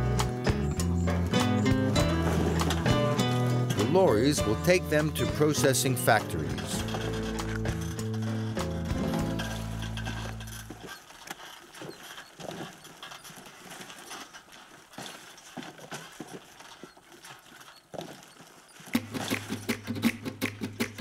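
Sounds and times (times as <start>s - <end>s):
strummed guitar music: 0.0s - 10.6s
cork bark slabs clattering: 0.0s - 16.8s, 18.9s - 21.0s.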